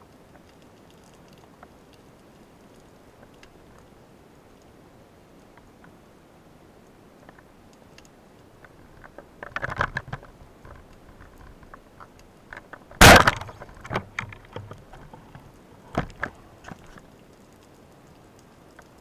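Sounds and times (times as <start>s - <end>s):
soft clicks and crackles: 0.0s - 19.0s
speargun firing underwater: 13.0s - 13.7s.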